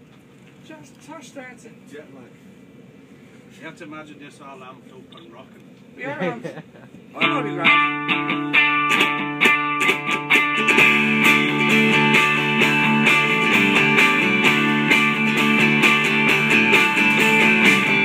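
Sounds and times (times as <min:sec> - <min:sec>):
bass guitar: 0:07.2 - 0:18.0
electric guitars strumming: 0:07.2 - 0:18.0.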